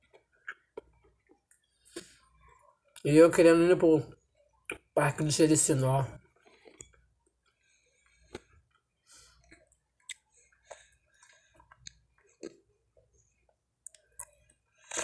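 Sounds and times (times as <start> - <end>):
chewing: 9.4 - 15.0.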